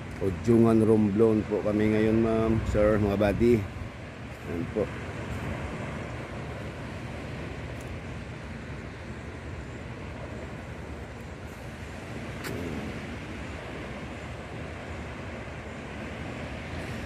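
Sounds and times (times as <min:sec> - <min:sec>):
waves washing up a beach: 0:00.0 - 0:17.0
wind on microphone: 0:10.0 - 0:17.0.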